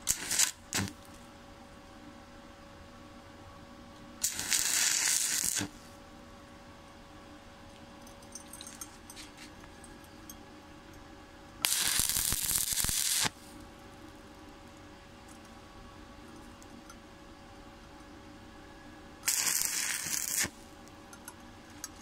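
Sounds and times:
welding arc crackling: 0.0 - 1.1, 4.2 - 5.7, 11.6 - 13.4, 19.2 - 20.6
faint steady hum: 0.0 - 22.0.

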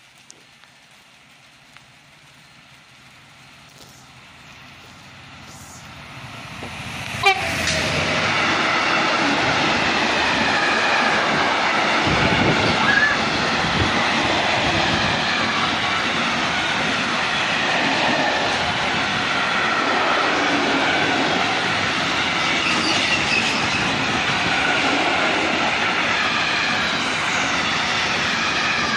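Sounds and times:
electric locomotive passing: 0.0 - 28.9
wheels squealing: 12.6 - 13.4, 22.3 - 24.4.

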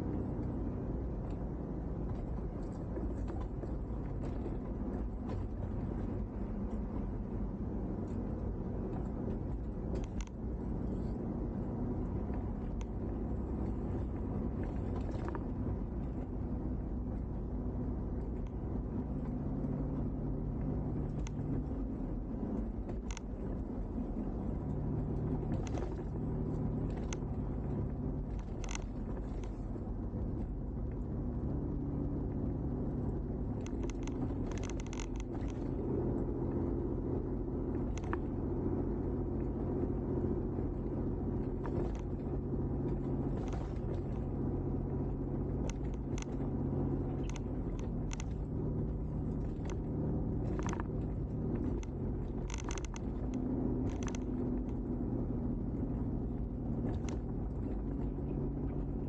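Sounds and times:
car engine and tyre rumble: 0.0 - 59.0
light clicks and ticks: 0.2 - 16.4, 18.1 - 59.0.

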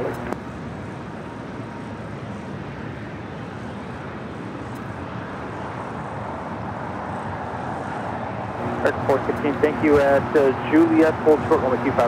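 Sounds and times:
distant jet aircraft: 0.0 - 12.0
ground vehicles rumbling: 8.3 - 12.0.

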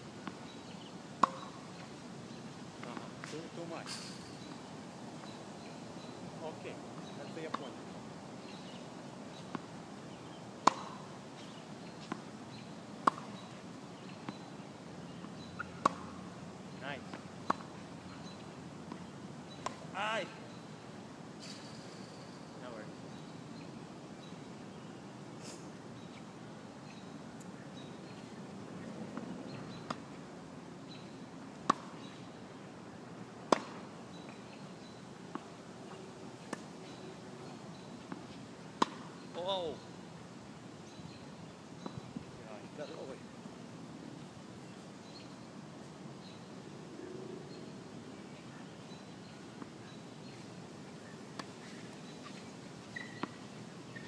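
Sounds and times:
distant tennis ball hits: 1.2 - 1.6, 10.6 - 11.1, 33.5 - 33.8
tennis ball hits and bounces: 1.2 - 1.6, 10.6 - 11.1, 13.0 - 13.4, 15.5 - 16.2, 17.1 - 19.9, 31.6 - 32.1, 33.5 - 33.8, 38.8 - 39.5.

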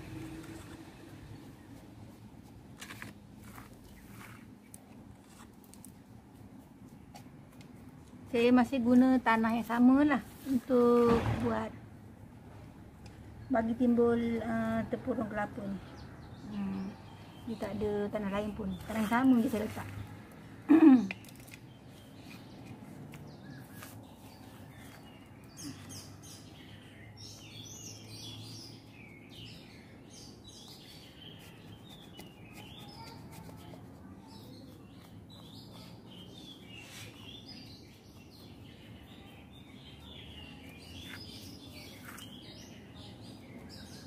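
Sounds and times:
birds chirping: 20.7 - 33.2, 34.1 - 44.0.

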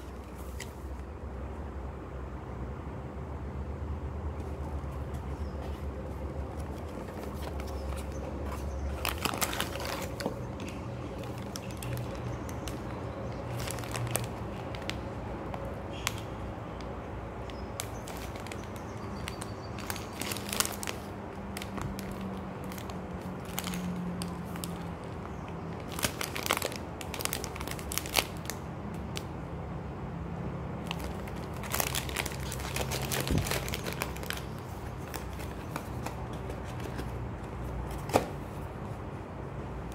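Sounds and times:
plastic bag crinkling: 6.6 - 15.1, 17.5 - 29.2, 30.8 - 36.1.

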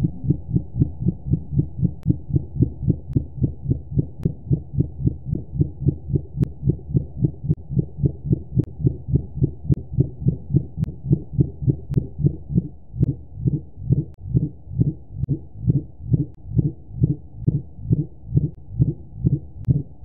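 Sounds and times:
low underwater pulsing: 0.0 - 20.0
steady low hum: 0.0 - 20.0.

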